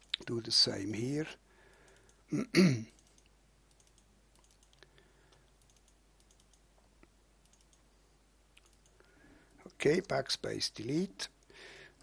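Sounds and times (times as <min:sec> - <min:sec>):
computer mouse clicks: 0:01.7 - 0:02.2, 0:02.9 - 0:06.7, 0:07.4 - 0:07.9, 0:08.6 - 0:09.1.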